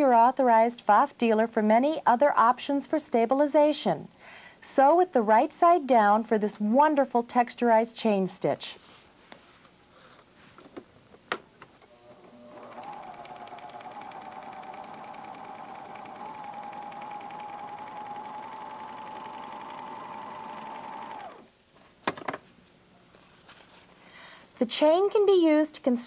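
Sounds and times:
sewing machine humming: 11.9s - 21.5s.

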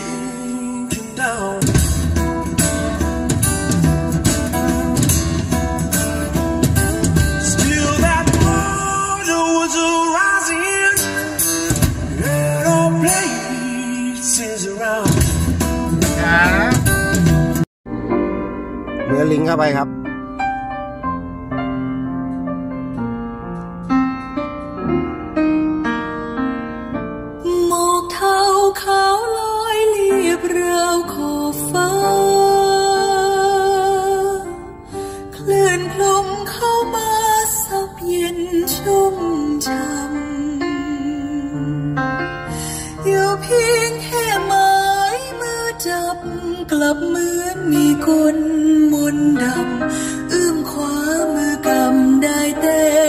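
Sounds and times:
live band music: 0.0s - 21.8s
slow piano notes and chords: 17.9s - 28.3s.

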